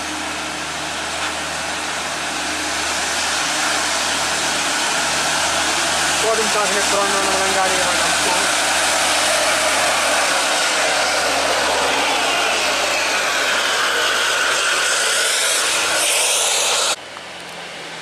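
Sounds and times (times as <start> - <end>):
bus engine under load: 0.0 - 18.0.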